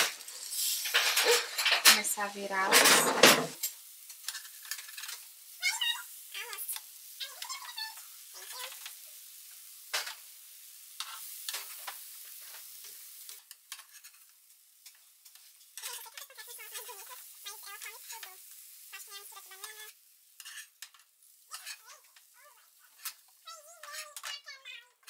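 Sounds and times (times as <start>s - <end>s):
pancakes sizzling in a frying pan: 0.0s - 25.0s
utensil scraping a pan: 0.1s - 3.6s, 13.7s - 14.2s, 20.4s - 20.8s, 21.5s - 21.8s.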